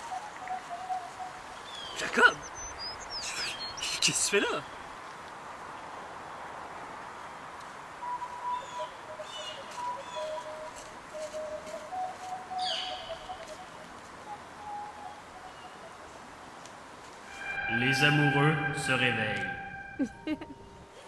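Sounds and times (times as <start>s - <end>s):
thin piping bird notes: 0.0s - 4.1s, 8.0s - 21.0s
downward-sweeping bird call: 0.0s - 4.8s, 8.0s - 16.3s, 17.2s - 21.0s
birds chirping: 0.0s - 5.0s, 8.0s - 16.6s, 17.2s - 20.9s
steady background hiss: 0.0s - 21.0s.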